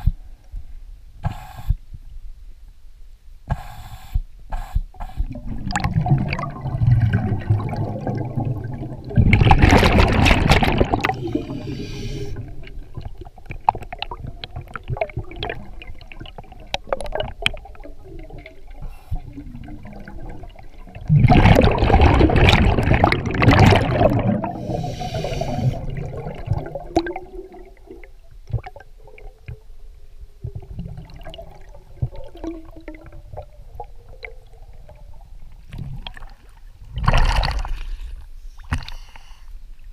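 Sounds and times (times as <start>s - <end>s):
underwater breath bubbles: 4.6s - 29.6s.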